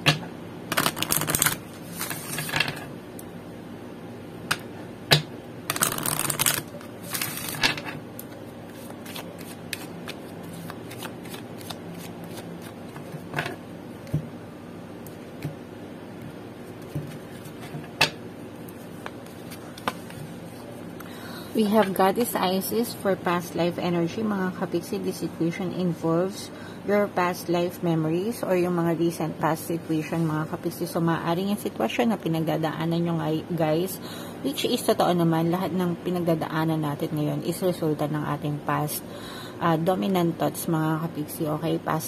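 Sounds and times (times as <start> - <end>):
cards shuffling: 0.7 - 2.7, 5.7 - 13.4.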